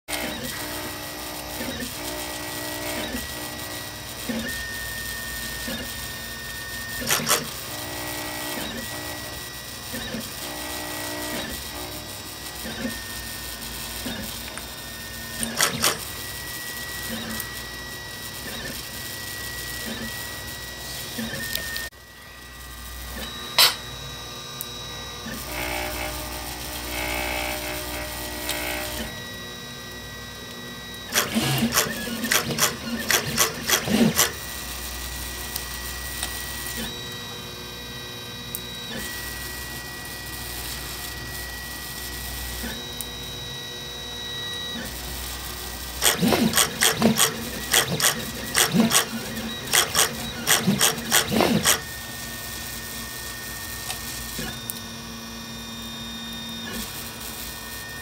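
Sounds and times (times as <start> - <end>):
stepper motors whining: 0.1 - 58.0
rapid loud clicking bursts: 45.9 - 51.8.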